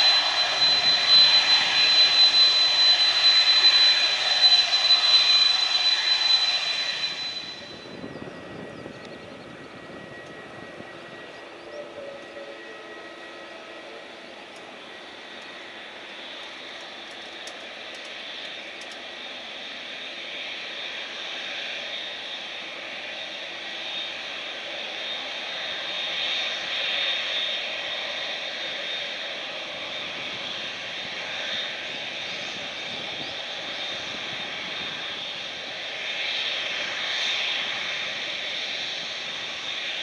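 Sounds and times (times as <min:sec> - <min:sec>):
jet engines whining at taxi power: 0:00.0 - 0:40.0.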